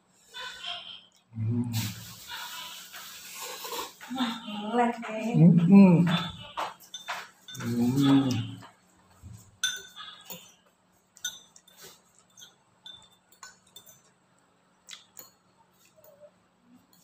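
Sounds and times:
man's voice: 5.4 - 6.4, 7.6 - 8.6
metal spoon clinking against bowl: 6.2 - 8.7, 9.6 - 14.2.

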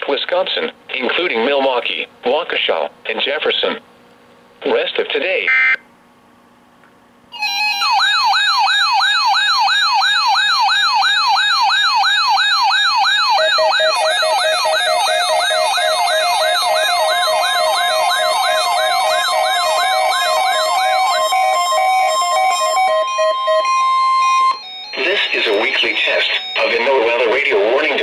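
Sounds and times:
rising whoop alarm: 7.4 - 25.2
fast pulsing low beep: 13.1 - 28.0.

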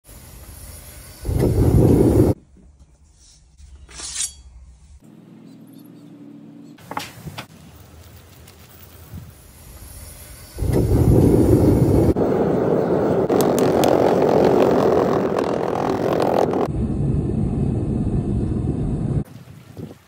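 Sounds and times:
loud rushing roar: 10.8 - 19.2.

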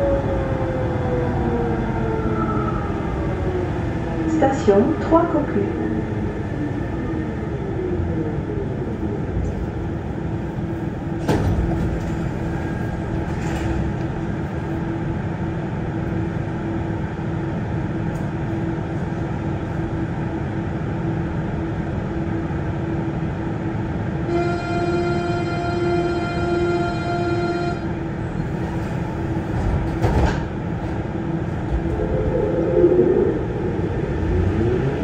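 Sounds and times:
metro car rumble: 0.0 - 35.0
high steady whine: 31.2 - 35.0.

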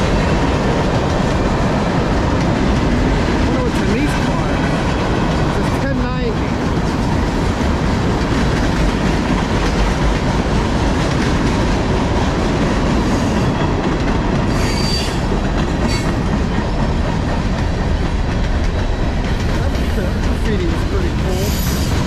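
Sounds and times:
train wheels rumbling on rail: 0.0 - 22.0
high wheel squeal: 14.5 - 15.2.

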